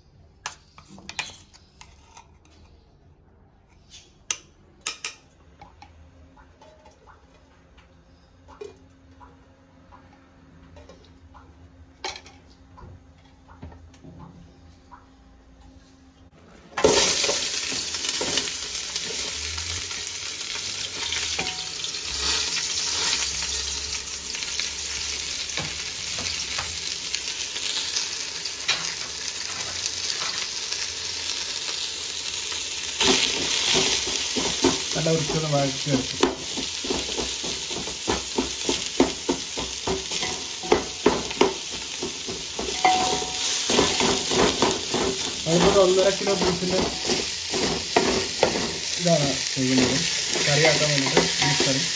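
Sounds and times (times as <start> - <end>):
spatula scraping a pan: 0.5 - 2.8, 39.6 - 48.9
food sizzling in hot oil: 16.8 - 51.9.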